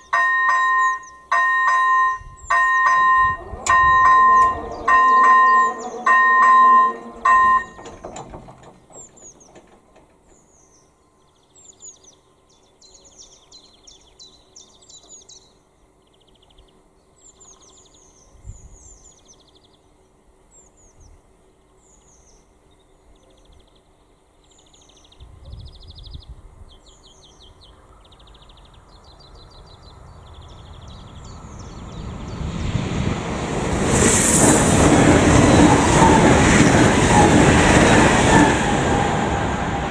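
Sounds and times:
level-crossing bell two-tone warning: 0:00.0 - 0:08.0
electric train rumble: 0:00.0 - 0:10.7, 0:28.2 - 0:39.9
birds chirping: 0:00.0 - 0:20.0, 0:21.6 - 0:33.0, 0:34.4 - 0:39.9.

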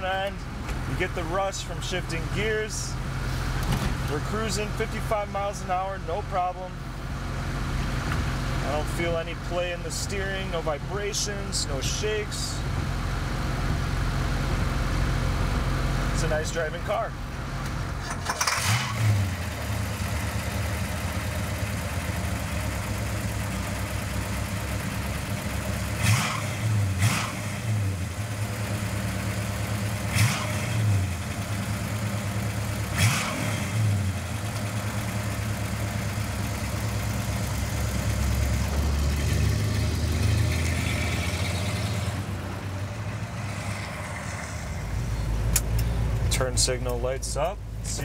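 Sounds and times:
car engine idling and revving: 0:00.0 - 0:48.0.

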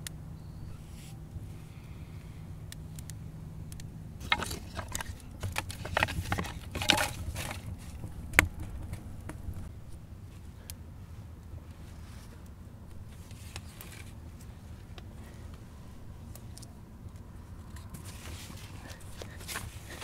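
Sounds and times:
dry sticks clattering and scraping: 0:03.7 - 0:09.7, 0:12.0 - 0:15.6, 0:16.3 - 0:20.0.

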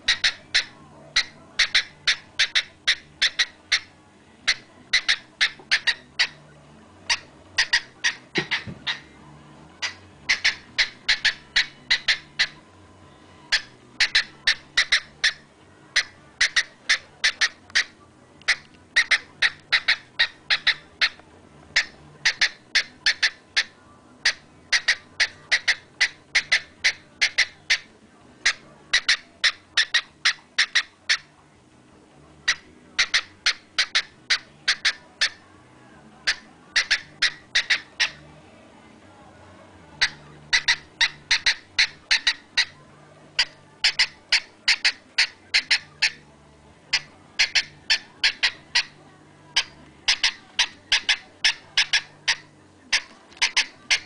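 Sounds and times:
cockatiel clicking: 0:00.1 - 0:03.9, 0:16.0 - 0:31.3, 0:36.2 - 0:38.2, 0:40.0 - 0:42.8, 0:43.4 - 0:46.2, 0:46.9 - 0:49.0, 0:49.6 - 0:54.0.

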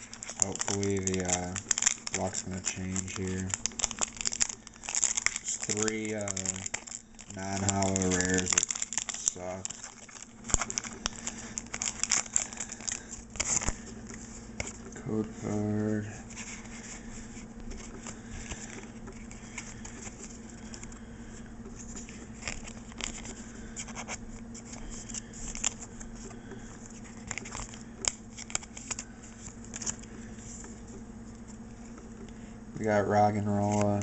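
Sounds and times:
plastic wrapper crinkling: 0:00.0 - 0:15.1, 0:15.7 - 0:21.0, 0:21.8 - 0:30.8
trading cards shuffling: 0:00.0 - 0:21.0, 0:21.6 - 0:32.1.

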